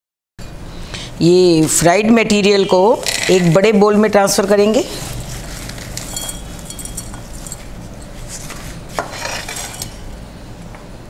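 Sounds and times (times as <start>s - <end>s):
paper towel rustling: 4.2s - 9.8s
nuts rattling against a bowl: 5.2s - 8.4s.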